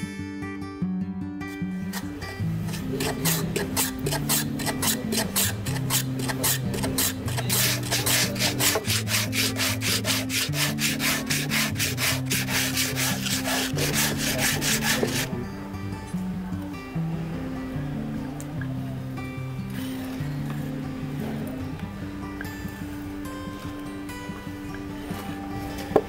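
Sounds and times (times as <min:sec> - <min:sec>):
background music: 0:00.0 - 0:26.0
hand sanding wooden block: 0:02.7 - 0:15.3.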